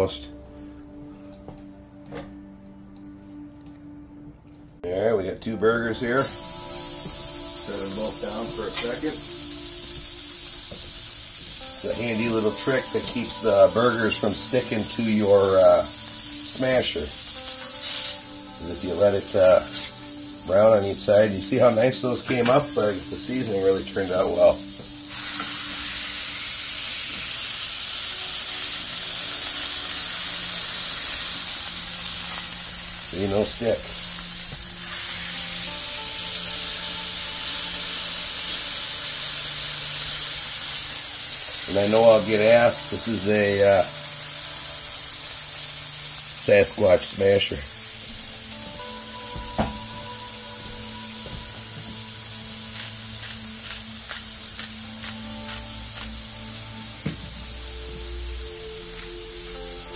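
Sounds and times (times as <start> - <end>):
patties sizzling in a pan: 6.2 - 59.9.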